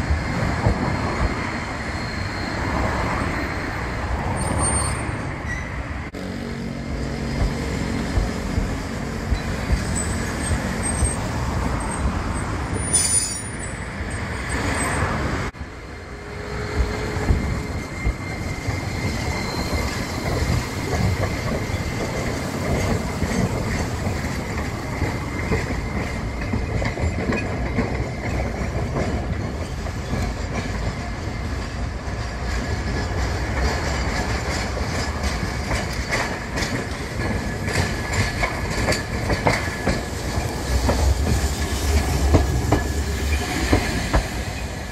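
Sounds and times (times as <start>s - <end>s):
tram passing: 0.0s - 44.9s
faint wheel squeal: 1.6s - 5.8s, 16.9s - 20.5s
wheels clicking over rail joints: 16.8s - 44.9s.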